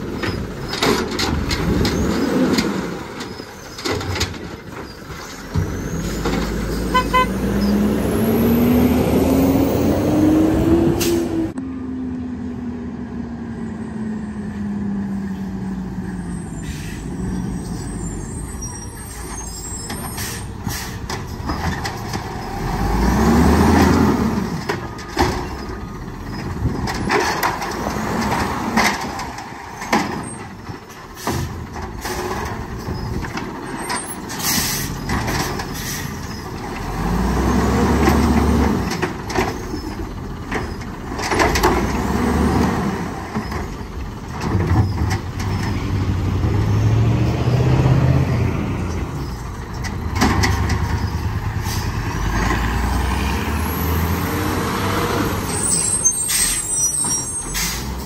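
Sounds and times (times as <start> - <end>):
cart banging against hopper: 0.0 - 7.0, 19.4 - 46.6, 49.7 - 52.8
garbage truck engine revving: 0.0 - 11.6, 15.7 - 58.0.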